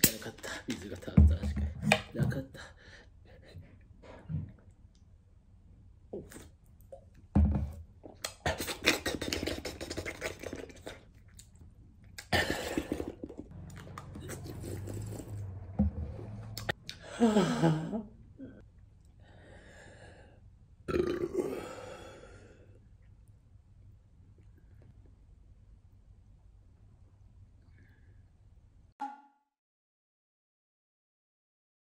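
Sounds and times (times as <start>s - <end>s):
man breathing hard: 19.2s - 20.4s, 21.5s - 22.8s
man burping: 20.9s - 22.1s.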